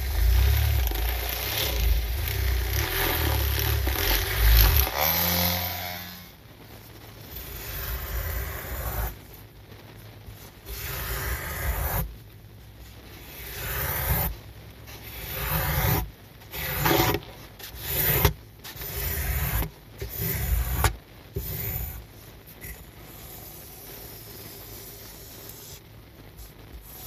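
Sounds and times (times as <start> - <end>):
squeegee scraping wet rug: 0.0 - 6.0, 10.6 - 12.1, 13.1 - 22.0.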